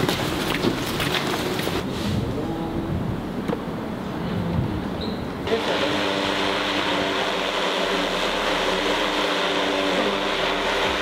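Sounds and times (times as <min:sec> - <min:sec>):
drone propeller buzz: 0:05.5 - 0:11.0.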